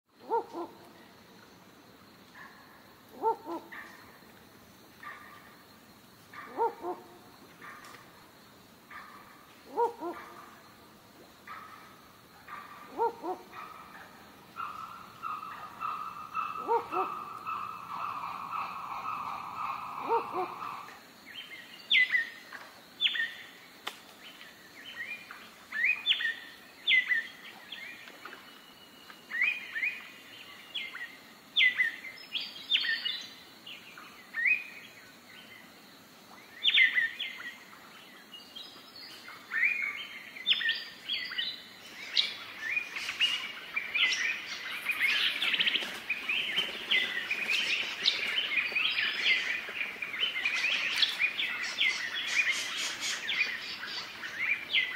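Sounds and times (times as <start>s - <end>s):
overlapping bird chirping: 12.5s - 20.9s.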